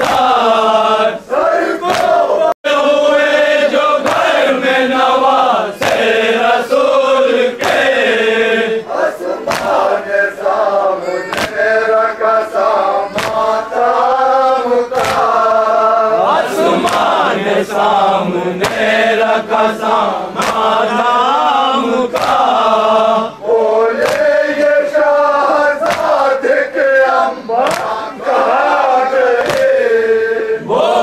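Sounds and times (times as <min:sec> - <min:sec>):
men chanting a lament: 0:00.0 - 0:31.0
rhythmic chest-beating strikes: 0:00.0 - 0:31.0.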